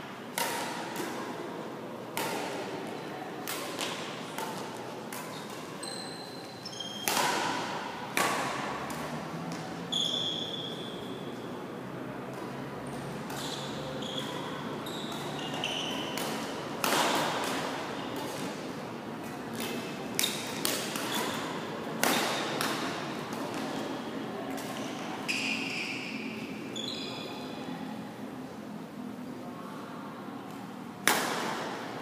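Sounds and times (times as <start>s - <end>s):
racket hitting shuttlecock: 0.3s - 1.5s, 2.1s - 6.0s, 6.9s - 10.5s, 12.3s - 25.5s, 31.0s - 31.9s
shoes squeaking on court: 5.2s - 7.1s, 9.8s - 11.5s, 13.3s - 16.2s, 24.7s - 27.5s.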